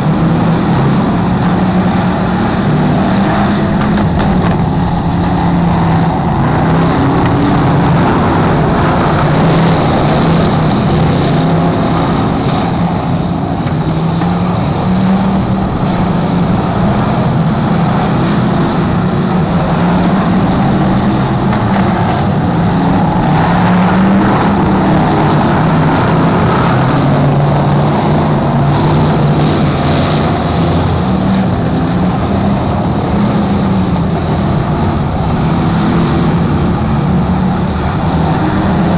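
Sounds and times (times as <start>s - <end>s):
stock car engines rumbling: 0.0s - 38.9s.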